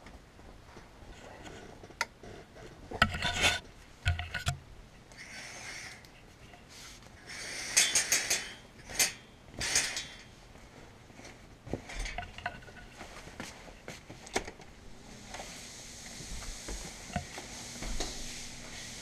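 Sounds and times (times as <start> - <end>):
sharp clicks and knocks: 2.9 - 4.6.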